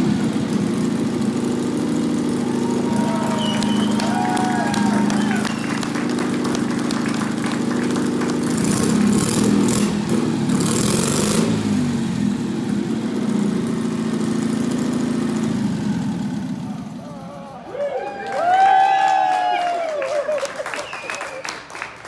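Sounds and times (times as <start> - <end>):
motorcycle engine running: 0.0 - 17.6.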